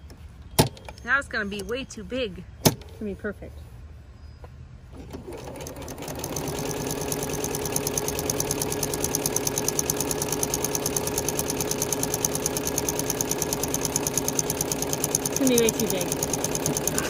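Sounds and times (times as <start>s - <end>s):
sewing machine stitching: 5.0s - 17.0s.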